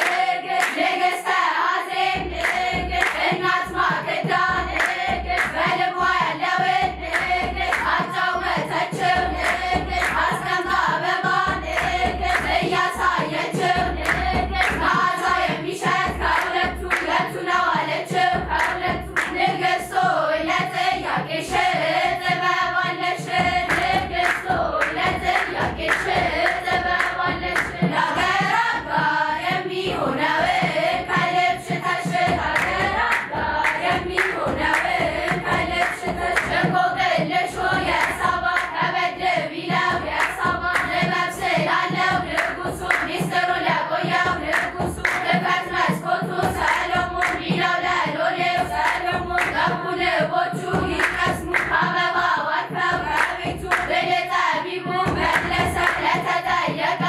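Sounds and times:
girls choir singing a hymn: 0.0s - 57.0s
rhythmic hand clapping: 0.0s - 57.0s.

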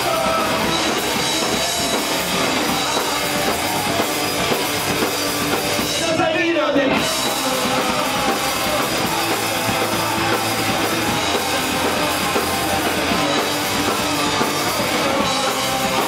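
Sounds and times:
drum kit: 0.0s - 16.0s
electric guitars: 0.0s - 16.0s.

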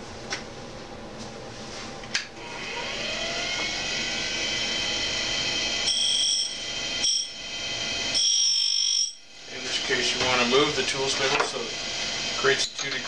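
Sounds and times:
grinder motor whining: 2.4s - 13.0s
shrill ringing of grinding wheel: 5.7s - 11.7s.

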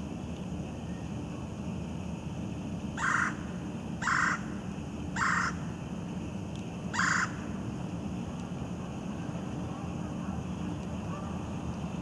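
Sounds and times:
woodpecker calling: 3.0s - 3.4s, 4.0s - 4.5s, 5.2s - 5.6s, 6.9s - 7.5s.

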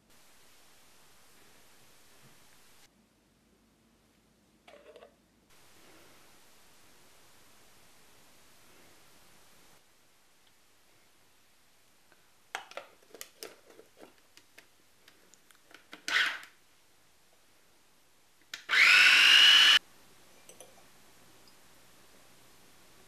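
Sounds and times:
food processor motor whining: 18.7s - 19.8s.

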